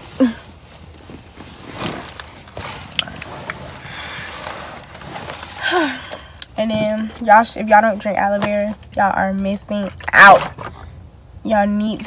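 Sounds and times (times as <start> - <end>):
fabric rustling: 0.0 - 7.2.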